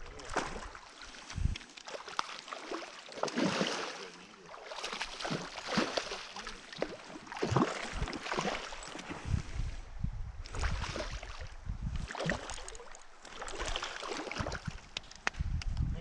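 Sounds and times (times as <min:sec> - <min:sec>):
fish splashing at water surface: 0:00.2 - 0:09.1, 0:12.0 - 0:15.0.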